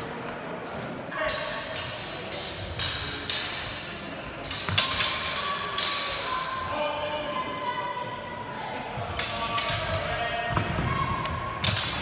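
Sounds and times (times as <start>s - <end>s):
sword blades clashing: 1.2s - 6.5s, 9.2s - 10.2s, 11.6s - 12.0s.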